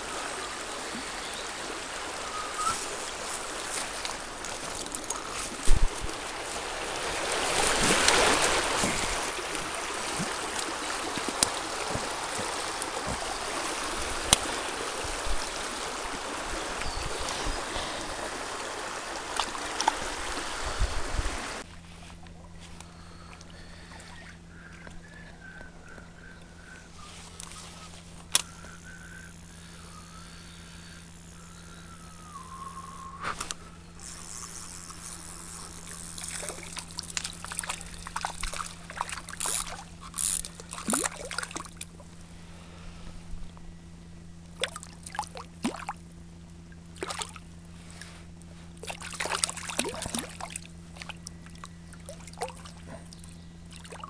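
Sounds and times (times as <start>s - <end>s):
river water rushing: 0.0s - 21.6s
low hum: 0.0s - 54.0s
faint wavering whistle: 2.2s - 3.1s, 22.8s - 34.3s.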